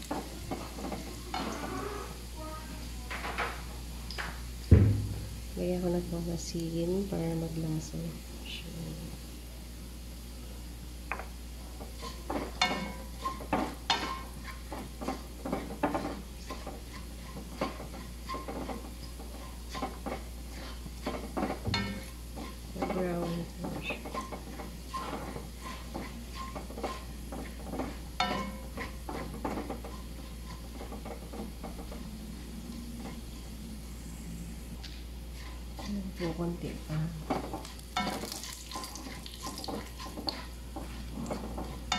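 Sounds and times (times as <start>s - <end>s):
spatula scraping wok: 0.0s - 2.3s, 11.1s - 34.6s, 35.2s - 41.9s
light sizzle: 0.0s - 41.9s.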